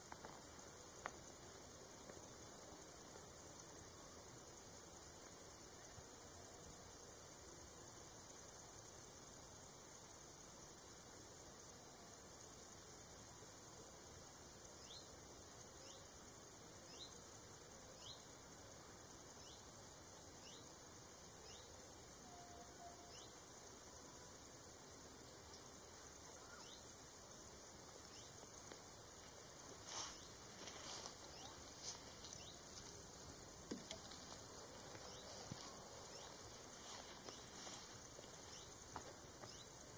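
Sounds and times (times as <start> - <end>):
crickets trilling: 21.4 - 23.8, 25.4 - 39.9.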